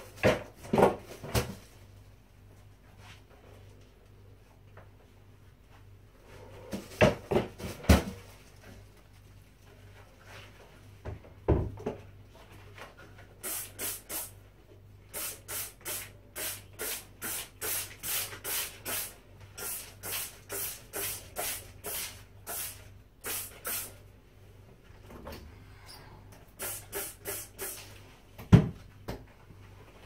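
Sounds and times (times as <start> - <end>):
spray bottle squirting: 13.4 - 14.3, 15.1 - 23.9, 26.6 - 27.9.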